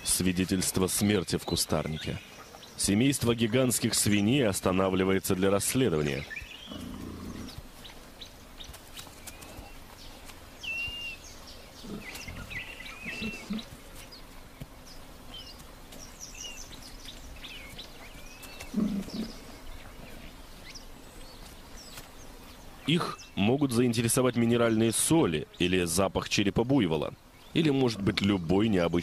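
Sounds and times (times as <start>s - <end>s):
birds chirping: 0.0s - 29.0s
hogs grunting: 5.9s - 7.6s, 11.8s - 13.8s, 18.6s - 20.4s.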